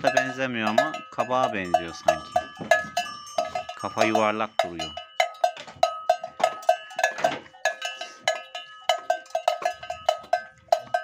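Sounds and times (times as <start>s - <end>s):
cowbell clanking: 0.0s - 11.0s.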